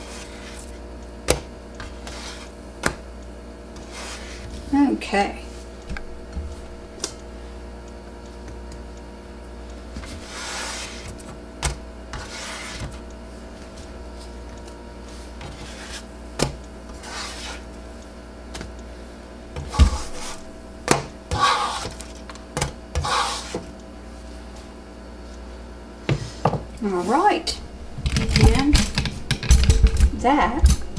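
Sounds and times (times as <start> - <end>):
spatula scraping griddle: 0.0 - 0.7, 1.8 - 2.6, 3.8 - 4.6, 10.0 - 11.2, 12.1 - 13.0, 15.1 - 16.1, 16.9 - 17.7, 19.6 - 20.6, 21.3 - 22.1, 23.0 - 23.7
steady low hum: 0.0 - 30.9.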